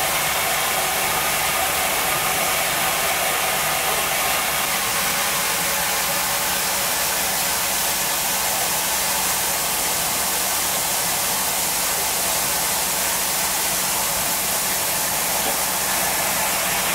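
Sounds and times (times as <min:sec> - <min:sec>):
steam locomotive venting steam: 0:00.0 - 0:16.9.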